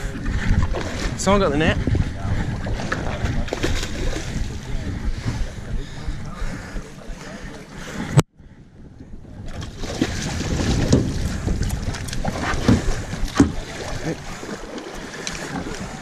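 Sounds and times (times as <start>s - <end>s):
water splashes: 0.0s - 5.6s, 9.4s - 16.0s
sea and boat noise: 0.0s - 16.0s
wind over microphone: 0.0s - 16.0s.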